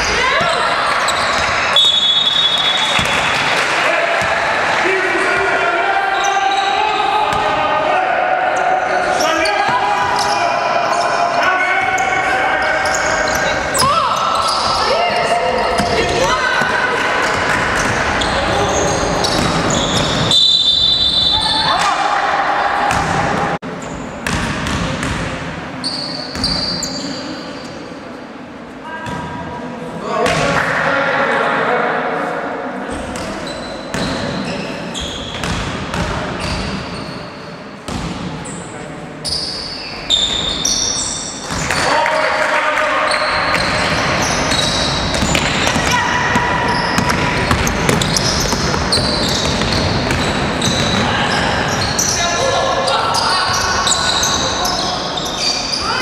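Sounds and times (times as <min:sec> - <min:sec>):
sneakers squeaking on floor: 0:00.0 - 0:03.5, 0:06.1 - 0:07.5, 0:08.6 - 0:21.9, 0:22.9 - 0:27.9, 0:32.9 - 0:42.0, 0:43.0 - 0:56.0
crowd chatter: 0:00.0 - 0:56.0
basketball dribbling: 0:44.5 - 0:51.0.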